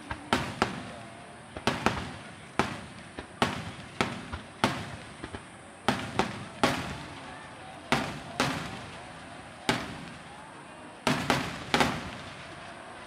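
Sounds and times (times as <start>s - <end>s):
firework shells bursting: 0.0s - 10.4s, 11.0s - 12.8s.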